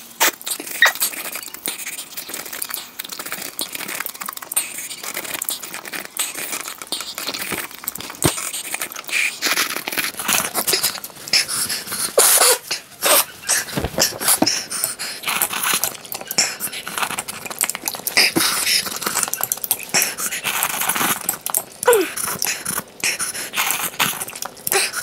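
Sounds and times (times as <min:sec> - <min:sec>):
chewing and crunching: 0:00.0 - 0:25.0
slurping noodles: 0:00.0 - 0:25.0.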